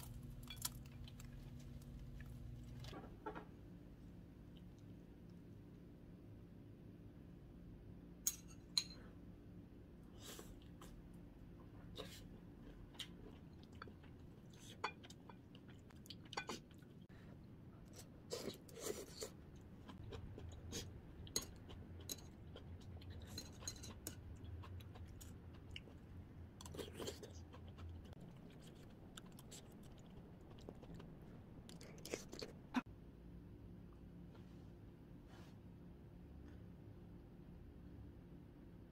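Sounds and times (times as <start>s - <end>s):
low steady hum: 0.0s - 38.9s
chewing food: 10.5s - 17.1s, 17.8s - 32.9s.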